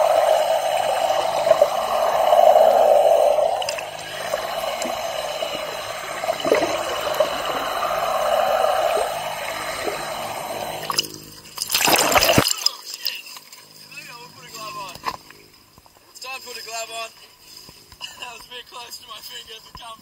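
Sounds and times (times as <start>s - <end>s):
underwater rushing hiss: 0.0s - 11.1s, 11.7s - 12.4s.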